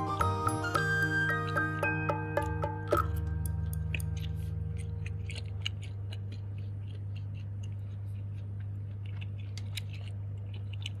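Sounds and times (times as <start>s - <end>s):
steady low hum: 1.6s - 11.0s.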